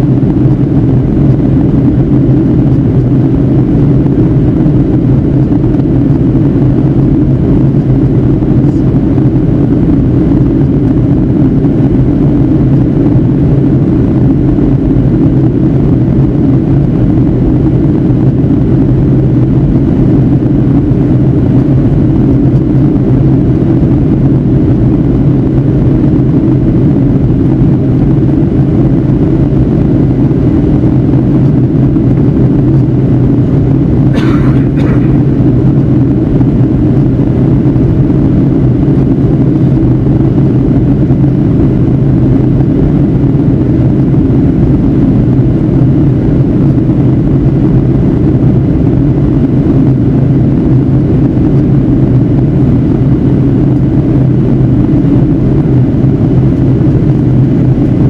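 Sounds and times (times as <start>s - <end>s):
airplane cabin drone: 0.0s - 58.0s.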